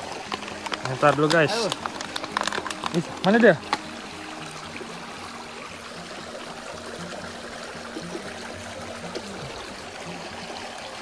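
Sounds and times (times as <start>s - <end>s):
river water running: 0.0s - 11.0s.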